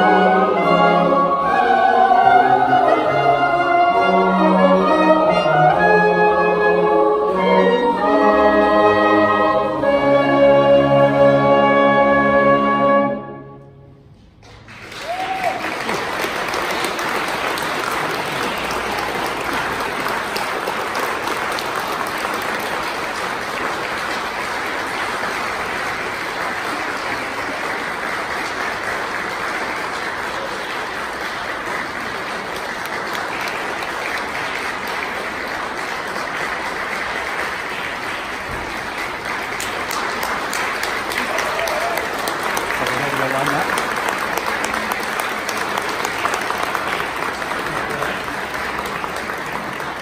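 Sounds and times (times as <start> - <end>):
audience applauding: 14.4 - 50.0.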